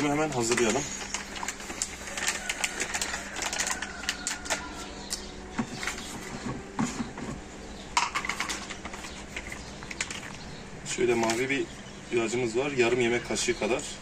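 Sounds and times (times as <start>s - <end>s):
sachet crinkling: 0.0s - 6.1s.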